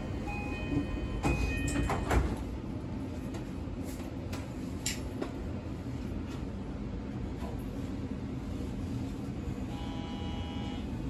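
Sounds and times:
low hum of stopped train: 0.0 - 11.0
two-tone door chime: 0.2 - 2.2.

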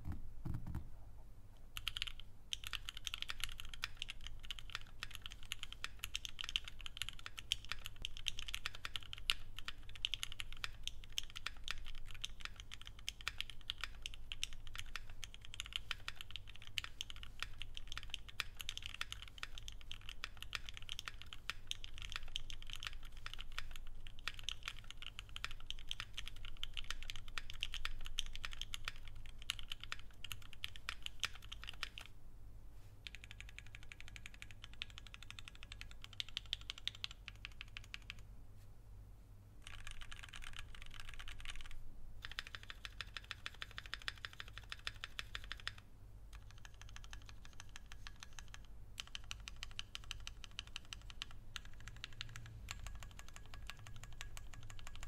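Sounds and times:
fast typing on mechanical keyboard: 1.8 - 32.1, 33.1 - 38.2, 39.6 - 55.0.

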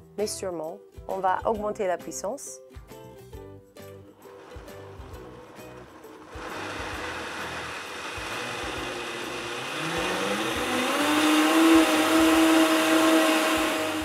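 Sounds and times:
blender motor blending: 4.2 - 14.0.

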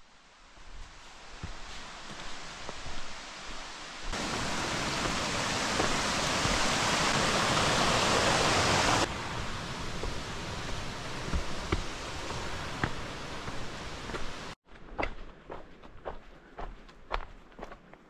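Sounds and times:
creek water rushing over rocks: 0.6 - 14.6.

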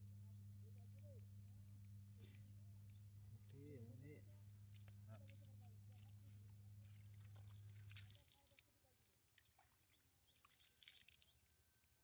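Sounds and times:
low steady hum: 0.0 - 8.1.

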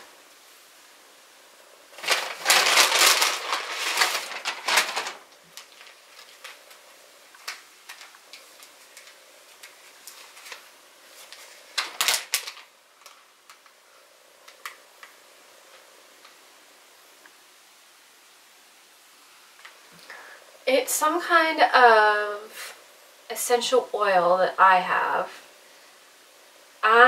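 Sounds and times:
paper bag rustling: 1.9 - 13.7
plastic zip-top bag crinkling: 2.0 - 13.8.

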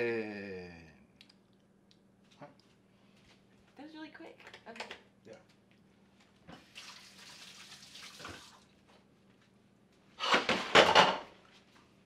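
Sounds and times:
kitchen tap running water: 6.6 - 8.7.

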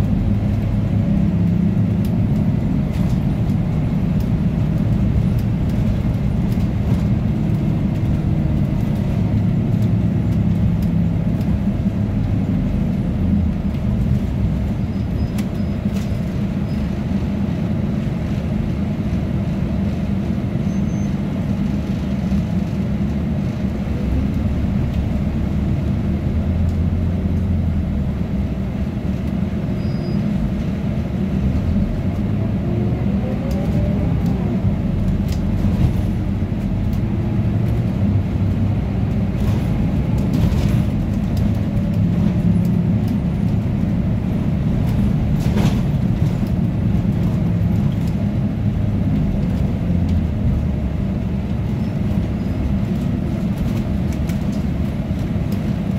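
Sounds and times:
bus engine rumble: 0.0 - 55.9
air-conditioning blowers: 21.2 - 55.9.

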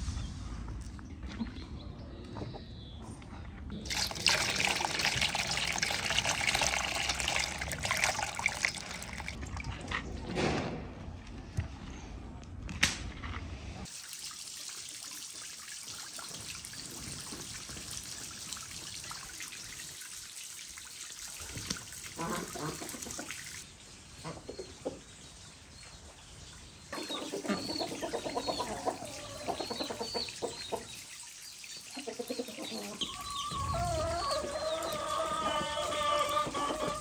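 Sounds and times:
water pouring into pond: 3.8 - 9.9, 13.8 - 23.8, 27.1 - 37.0.

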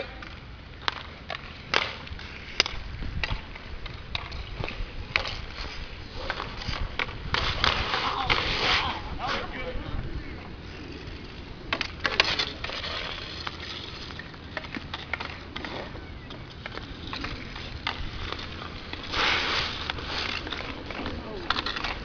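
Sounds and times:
hockey sticks clacking on ball: 0.0 - 8.7, 11.0 - 22.0
inline skate wheels rolling: 0.0 - 22.0
scraping rush: 5.2 - 16.0, 16.7 - 22.0.

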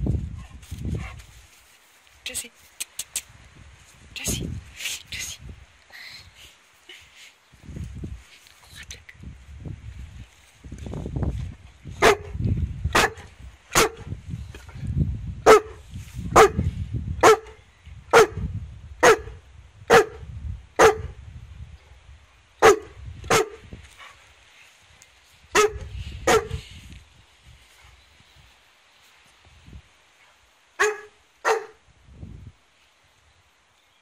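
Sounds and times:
dog barking: 12.0 - 14.1, 15.4 - 15.8, 16.4 - 16.6, 17.2 - 18.4, 19.0 - 20.2, 20.8 - 21.2, 22.6 - 23.6, 25.5 - 26.6, 30.8 - 31.8.

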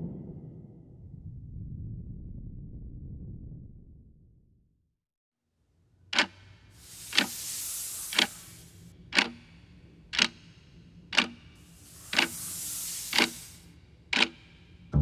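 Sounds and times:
pendulum clock ticking: 6.1 - 7.4, 9.1 - 12.5, 14.1 - 15.0
soft whooshing hiss: 6.7 - 9.8, 10.5 - 14.8.

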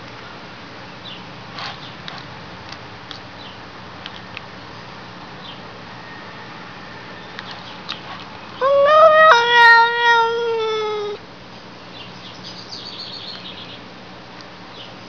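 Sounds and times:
cat meowing: 8.6 - 11.2.

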